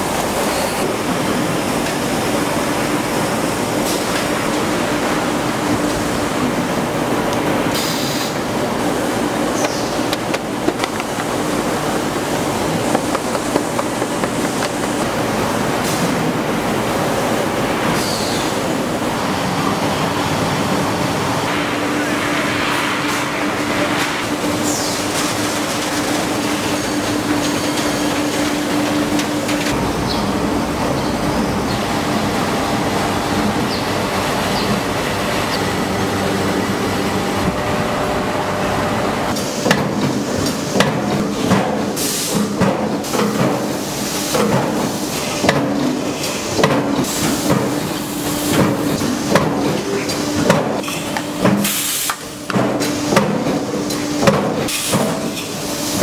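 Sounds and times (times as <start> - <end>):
factory machinery humming: 0.0 - 56.0
machines knocking and clanking: 9.4 - 16.8.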